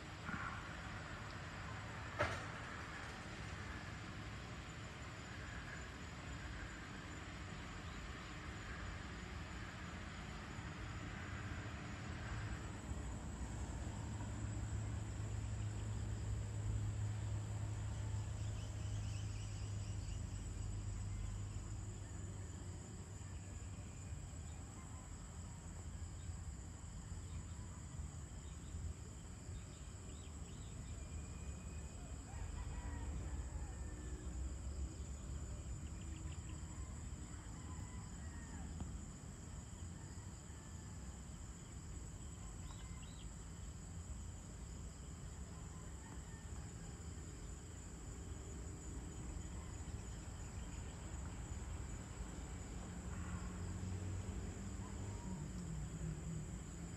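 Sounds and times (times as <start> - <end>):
high-pitched insect chorus: 2.8 - 56.9.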